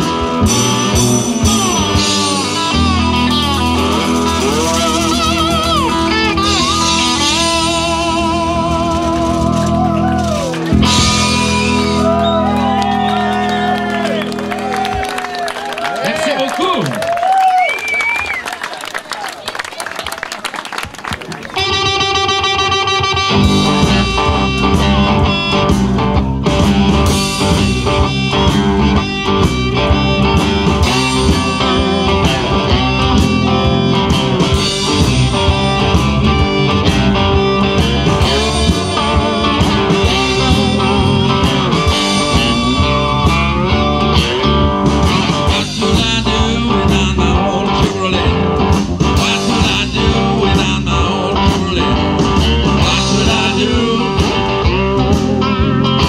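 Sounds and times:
cigar-box guitars: 0:00.0 - 0:15.2, 0:21.5 - 0:56.0
drum kit beat: 0:00.0 - 0:15.3, 0:21.6 - 0:56.0
amplified harmonica: 0:21.6 - 0:45.5.

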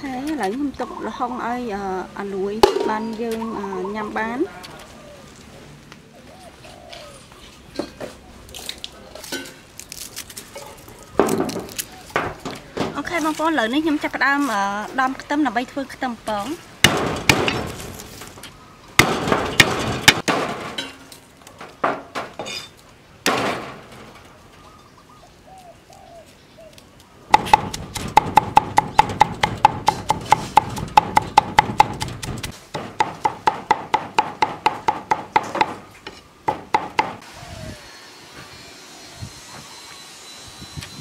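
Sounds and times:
fast rhythmic knife chopping: 0:27.3 - 0:35.2.

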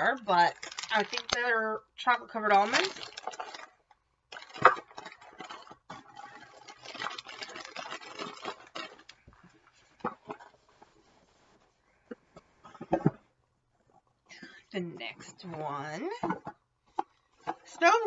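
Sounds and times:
cellophane crinkling: 0:00.0 - 0:11.6.

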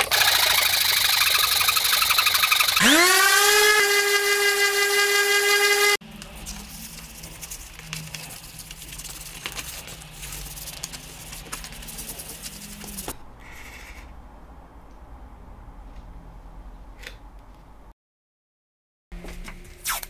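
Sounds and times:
power tool motor whining: 0:00.0 - 0:06.0
low workshop hum: 0:00.0 - 0:17.9, 0:19.2 - 0:20.0.

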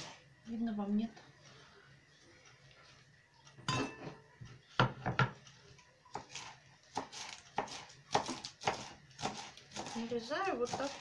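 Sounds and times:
knife chopping on wooden board: 0:06.1 - 0:10.0, 0:10.7 - 0:11.0.

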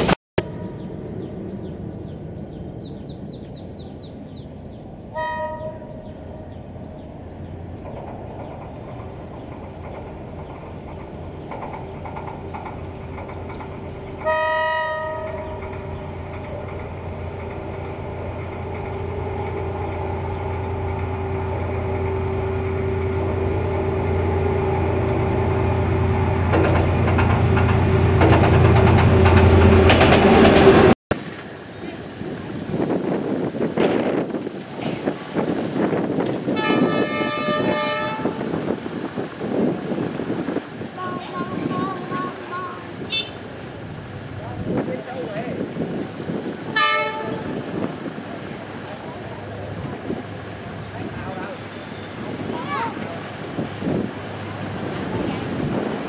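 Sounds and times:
diesel locomotive engine rumble: 0:00.0 - 0:56.0
train horn blasts: 0:05.1 - 0:06.1, 0:14.2 - 0:15.6, 0:36.5 - 0:38.6, 0:42.1 - 0:43.5, 0:46.7 - 0:47.7.

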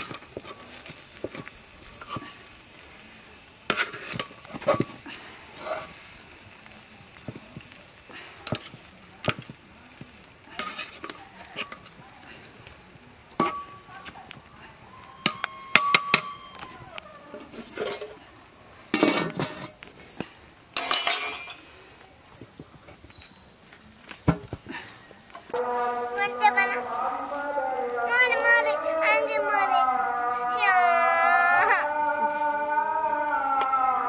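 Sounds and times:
metal pots and utensils clinking: 0:03.7 - 0:05.0, 0:10.6 - 0:12.0, 0:13.3 - 0:13.9, 0:17.3 - 0:18.2, 0:18.9 - 0:19.8, 0:20.8 - 0:21.7.

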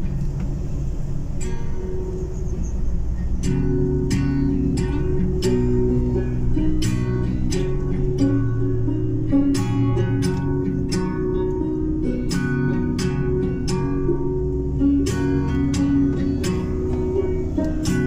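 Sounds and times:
strummed acoustic guitar chords: 0:00.0 - 0:18.0.

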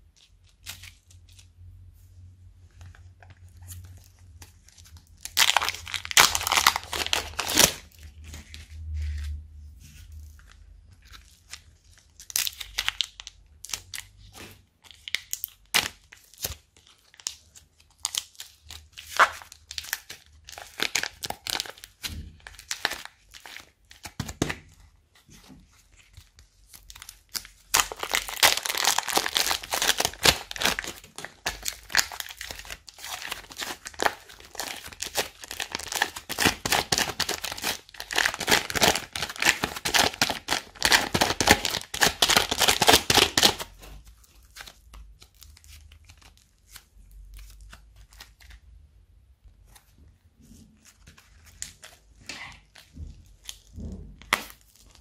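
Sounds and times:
plastic bag crinkling: 0:05.1 - 0:08.6, 0:27.7 - 0:43.8
slime popping and crackling: 0:05.2 - 0:07.9, 0:27.6 - 0:43.7.

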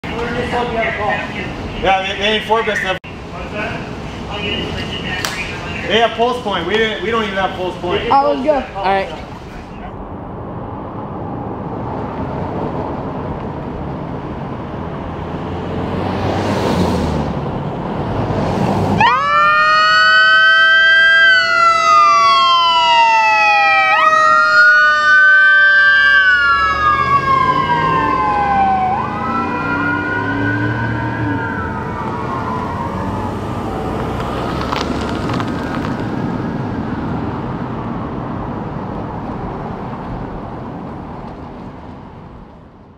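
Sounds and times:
traffic and engine noise: 0:00.0 - 0:42.9
dual-tone wailing siren: 0:19.0 - 0:34.2.

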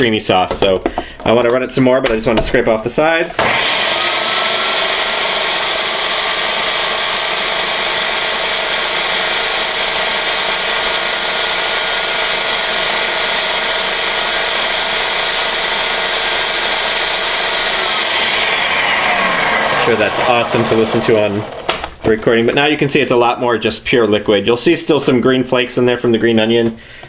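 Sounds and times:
electric blender motor whining: 0:03.4 - 0:22.0.

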